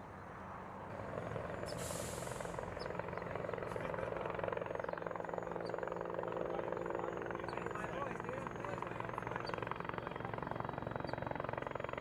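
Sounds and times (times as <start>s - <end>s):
brief high hiss: 1.8s - 2.5s
helicopter rotor chopping: 2.6s - 12.0s.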